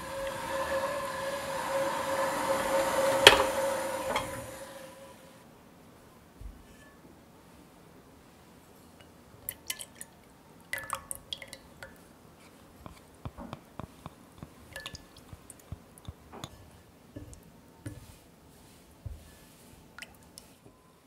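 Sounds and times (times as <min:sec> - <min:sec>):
liquid dripping and splashing: 0:09.4 - 0:12.0, 0:12.9 - 0:16.6.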